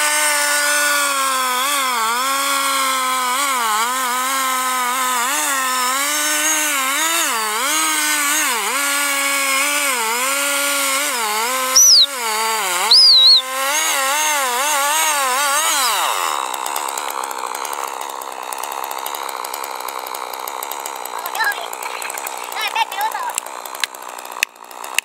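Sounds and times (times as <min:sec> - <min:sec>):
chainsaw cutting log: 0:00.0 - 0:25.0
high-pitched screeches: 0:11.7 - 0:12.2, 0:12.8 - 0:13.5.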